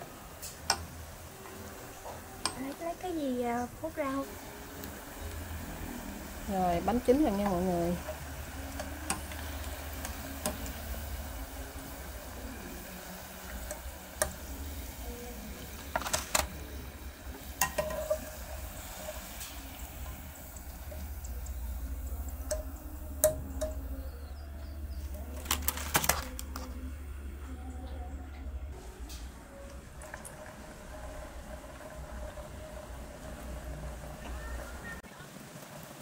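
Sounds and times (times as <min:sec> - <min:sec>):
food deep-frying in hot oil: 0:00.0 - 0:26.2, 0:28.7 - 0:36.0
skimmer clinking against metal pot: 0:17.6 - 0:18.4.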